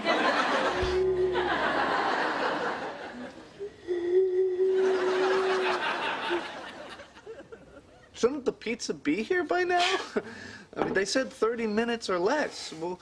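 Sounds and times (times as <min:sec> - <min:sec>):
studio audience laughing: 0:00.0 - 0:03.5, 0:04.9 - 0:07.8.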